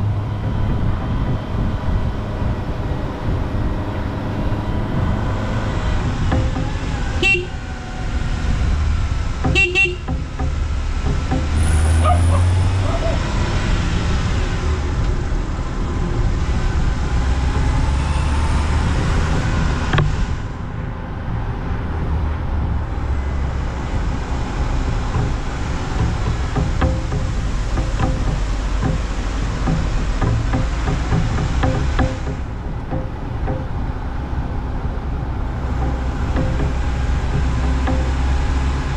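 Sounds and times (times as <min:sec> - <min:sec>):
car engine rumble: 0:00.0 - 0:38.9
wind and road noise: 0:00.0 - 0:38.9
car horn toots: 0:06.3 - 0:07.7, 0:09.4 - 0:10.4.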